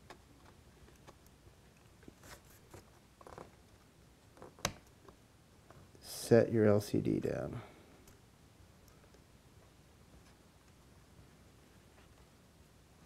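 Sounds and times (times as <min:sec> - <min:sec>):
fingers handling a cable: 0:00.0 - 0:05.9.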